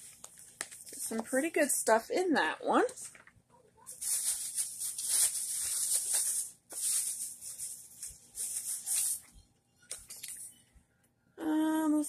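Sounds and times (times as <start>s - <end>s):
rustling and crinkling: 0.0s - 1.6s, 2.8s - 10.5s.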